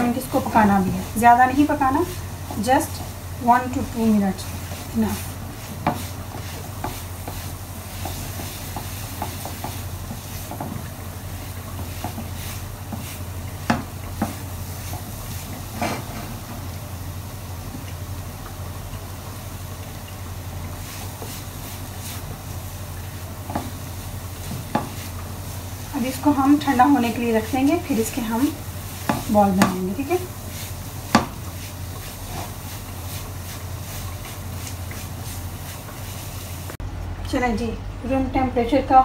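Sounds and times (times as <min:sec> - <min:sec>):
spatula stirring and scraping pan: 0:00.0 - 0:16.8, 0:19.0 - 0:36.8
steady low hum: 0:00.0 - 0:39.0
knocks against pan: 0:13.6 - 0:14.4, 0:31.1 - 0:31.4.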